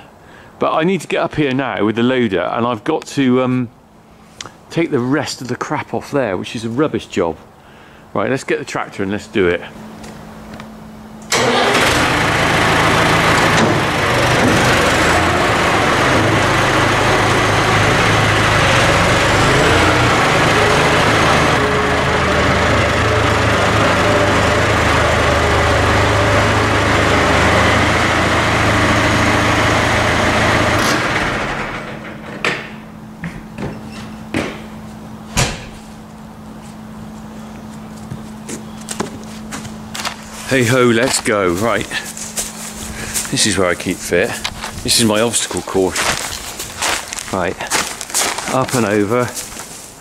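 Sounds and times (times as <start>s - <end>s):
tractor engine running: 10.5s - 33.9s, 34.6s - 50.0s
sharp knocks: 32.2s - 34.7s.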